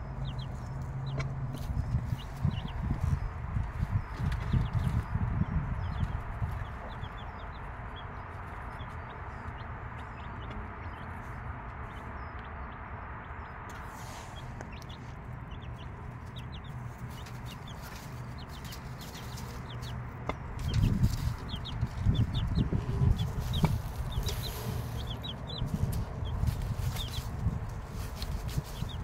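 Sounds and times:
chicks peeping: 0.0 - 29.0
hen clucking: 13.7 - 29.0.

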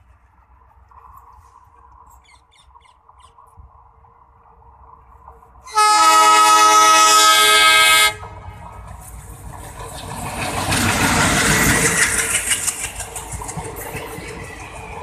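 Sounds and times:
diesel locomotive engine: 0.0 - 15.0
train wheels on rails: 0.0 - 15.0
locomotive air horn blast: 5.6 - 8.4.

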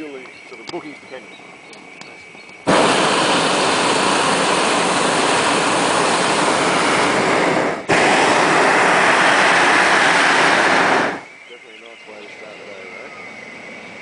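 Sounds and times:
propane burner blasting: 2.6 - 12.8.

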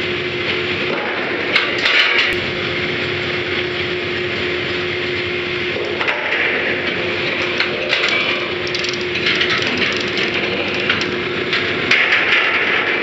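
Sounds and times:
drilling rig machinery droning: 2.2 - 12.0.

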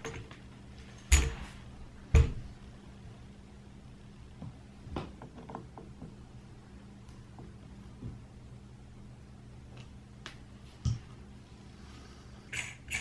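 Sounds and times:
tools being handled and set down: 0.0 - 1.6.

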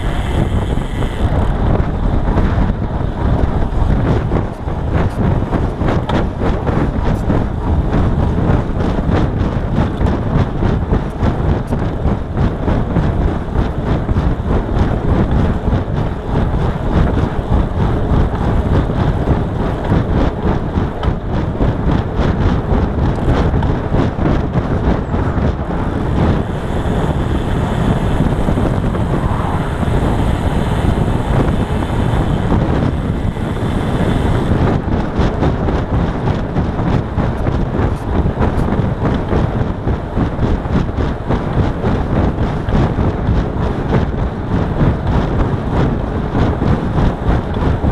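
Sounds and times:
tyre and road noise: 0.0 - 47.9
wind buffeting microphone: 0.0 - 47.9.

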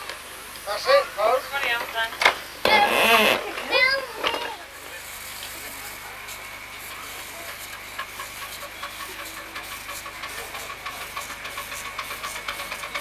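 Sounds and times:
steam locomotive hissing steam: 3.9 - 13.0.

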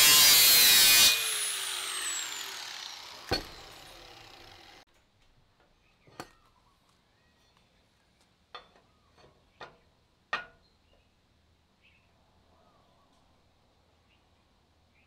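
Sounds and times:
angle grinder whirring: 0.0 - 4.8.

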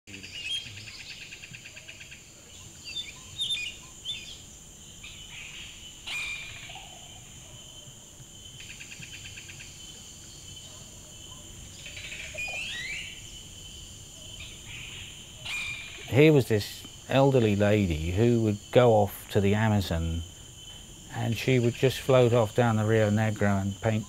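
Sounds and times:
bird chirps and calls: 0.1 - 7.6, 10.4 - 13.3, 14.2 - 17.6
high insect drone: 0.1 - 24.0.

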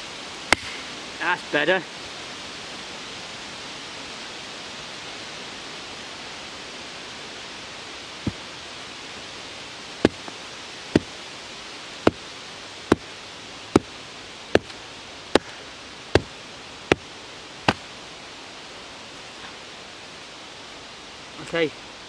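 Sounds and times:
steady hiss: 0.0 - 22.0
wooden knocks of log splitting: 10.0 - 10.3, 14.5 - 15.6.

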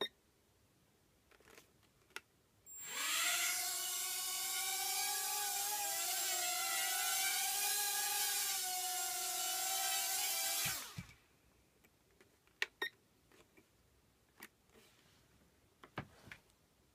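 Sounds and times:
quadcopter motors whining: 2.7 - 11.2.

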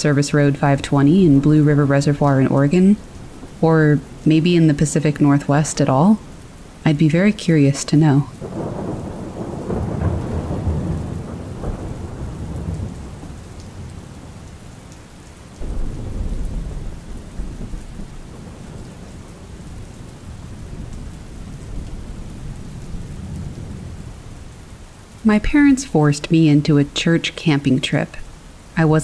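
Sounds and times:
steady rain: 0.0 - 29.0
rolling thunder: 8.4 - 14.7, 15.6 - 24.9.

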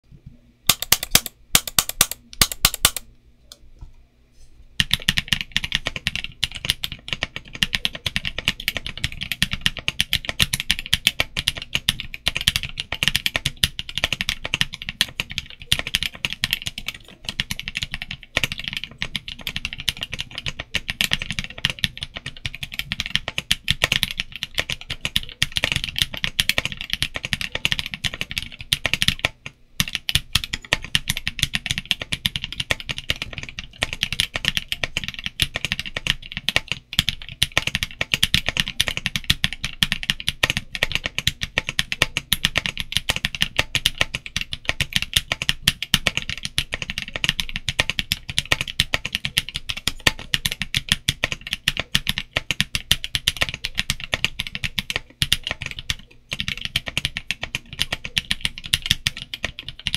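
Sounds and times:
mechanical keyboard typing: 0.7 - 3.1, 4.8 - 59.9.

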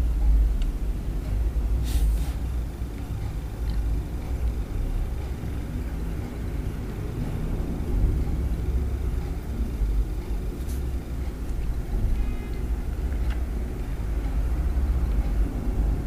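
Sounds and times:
brief hiss: 1.8 - 2.4.

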